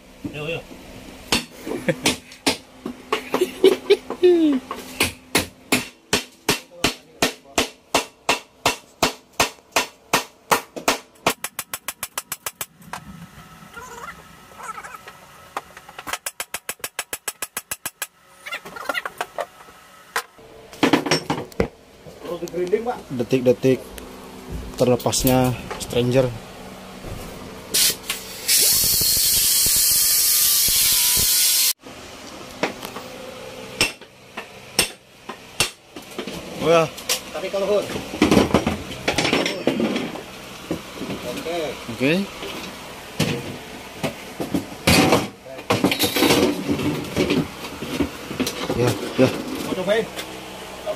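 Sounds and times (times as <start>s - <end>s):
compressed air tool hissing: 27.8s - 31.7s
hammer striking metal: 34.8s - 35.0s.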